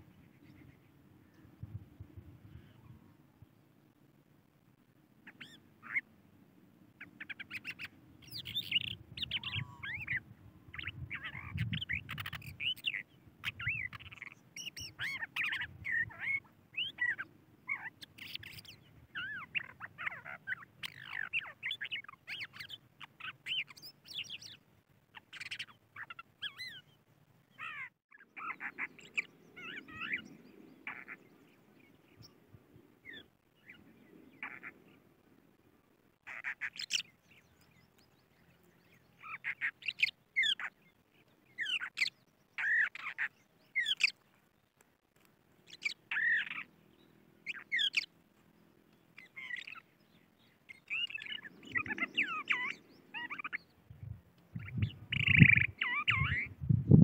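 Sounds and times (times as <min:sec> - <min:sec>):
lark singing chirps and trills: 0:00.0 - 0:03.7, 0:05.2 - 0:06.1, 0:06.9 - 0:35.1, 0:36.1 - 0:57.0.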